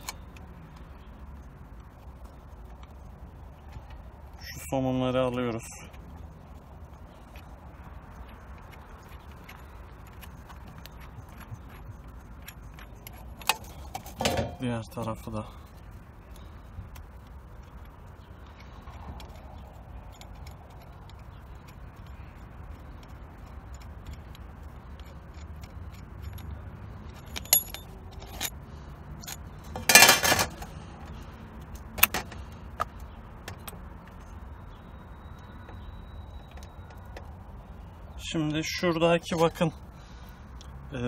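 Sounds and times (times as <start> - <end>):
metal tools and nuts clinking: 10.8 - 15.3, 18.6 - 30.8.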